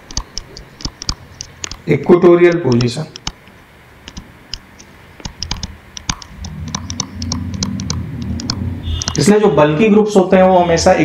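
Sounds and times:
pen tapping on tablet: 0.0 - 1.8, 2.5 - 3.4, 4.1 - 9.2
low steady hum: 0.0 - 10.5.

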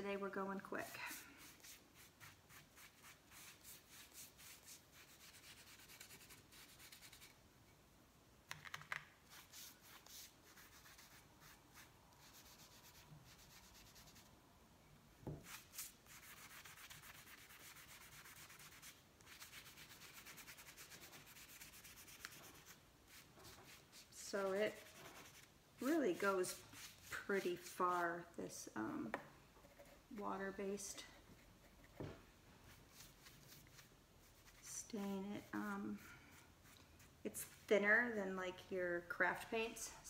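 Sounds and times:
paintbrush scrubbing wood: 15.5 - 28.0.

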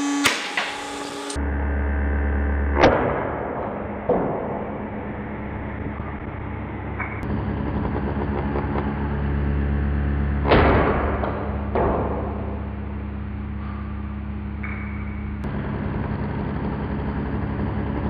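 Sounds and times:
loud crack: 0.0 - 1.4, 2.8 - 9.2, 10.2 - 13.6
router running: 0.0 - 2.0.

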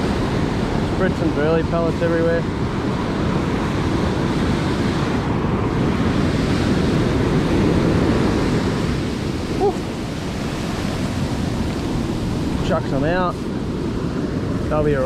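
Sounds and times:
ocean surf breaking: 0.0 - 15.0
wind buffeting microphone: 0.0 - 15.0.

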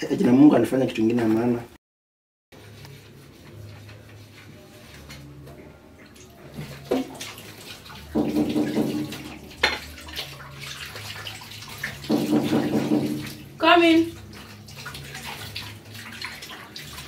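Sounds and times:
tap water splashing into sink: 6.2 - 17.0.

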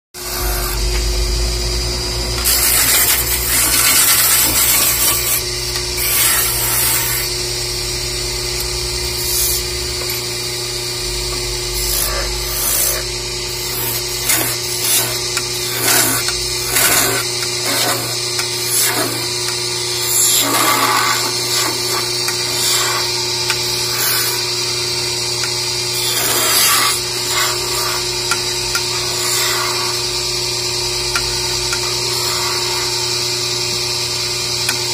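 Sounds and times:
lathe motor hum: 0.2 - 34.9
turning tool scraping wood: 2.4 - 5.4, 11.8 - 24.5, 25.9 - 30.0, 31.1 - 33.2.

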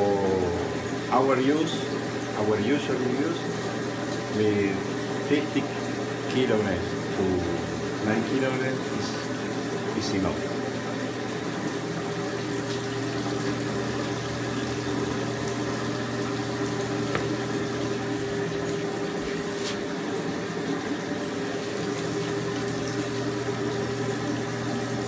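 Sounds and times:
drive motor humming: 0.0 - 19.4.

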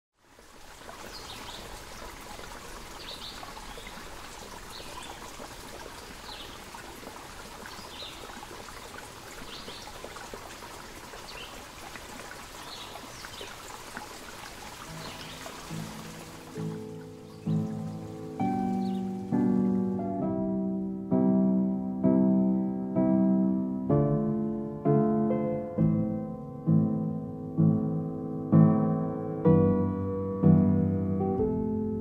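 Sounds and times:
flowing water: 0.2 - 20.1.

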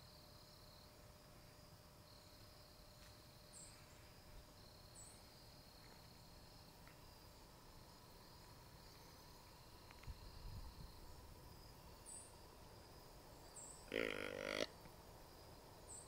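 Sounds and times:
faint insect trilling: 3.4 - 14.9.

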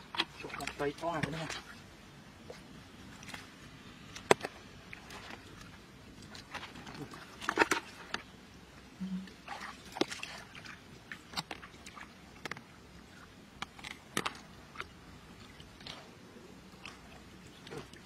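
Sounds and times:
wet clicks and small splashes: 0.0 - 1.8, 9.3 - 16.1, 16.7 - 18.0.

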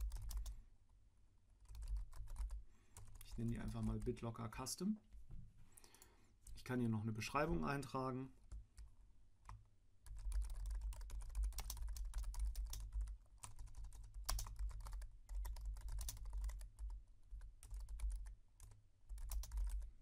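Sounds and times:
typing on computer keyboard: 0.0 - 0.6, 1.6 - 4.1, 9.5 - 19.9.

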